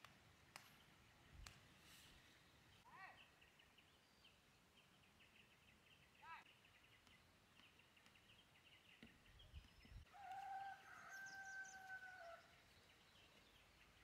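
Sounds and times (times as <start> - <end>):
rooster crowing: 10.1 - 12.5.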